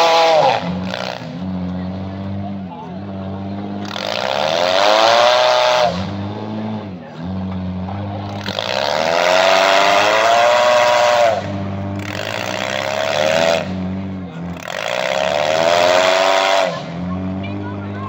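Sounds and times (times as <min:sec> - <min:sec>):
car engine revving hard: 0:00.0 - 0:18.0
car engine running steadily: 0:00.0 - 0:18.0.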